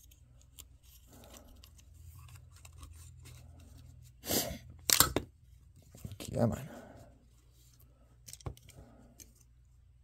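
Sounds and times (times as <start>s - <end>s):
plastic parts clicking and rustling: 8.2s - 9.5s.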